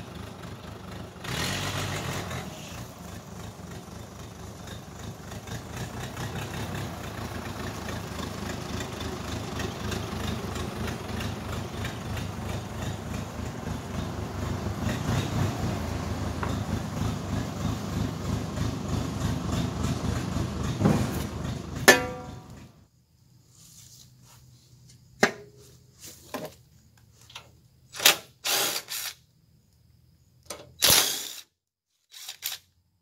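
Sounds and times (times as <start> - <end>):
backhoe engine chugging: 0.0 - 23.0
loud metallic clank: 20.8 - 22.6
cordless drill whirring: 28.4 - 29.2, 30.8 - 31.5, 32.1 - 32.6.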